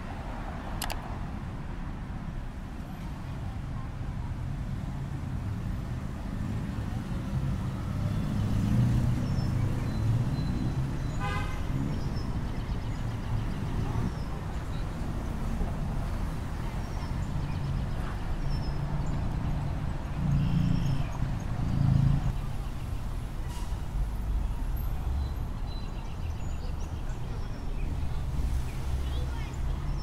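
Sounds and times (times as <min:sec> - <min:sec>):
road traffic rumble: 0:00.0 - 0:30.0
car horn toot: 0:11.2 - 0:11.6.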